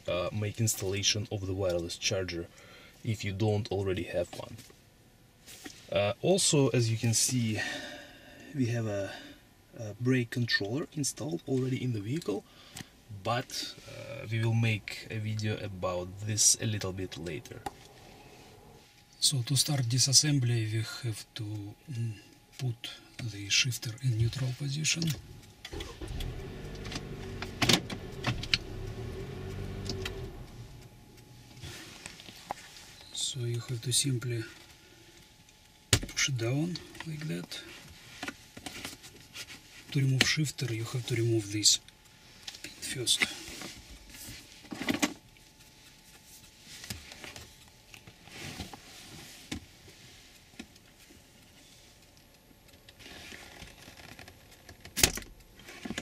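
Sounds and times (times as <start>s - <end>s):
car mechanical hum: 8.4s - 56.0s
gear shifter clicking: 25.1s - 30.9s.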